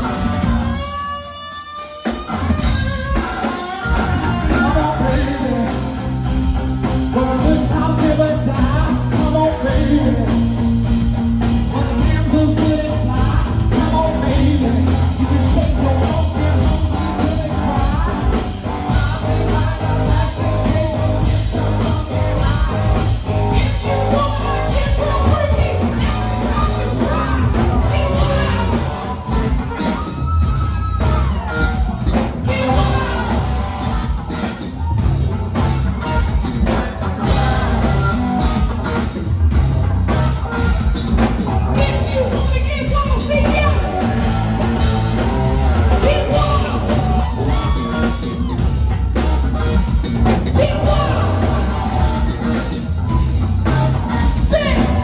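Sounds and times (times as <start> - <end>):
bass guitar: 0.0 - 55.0
drum kit: 0.0 - 55.0
electric guitar: 0.0 - 55.0
woman singing: 50.5 - 52.7, 53.6 - 55.0.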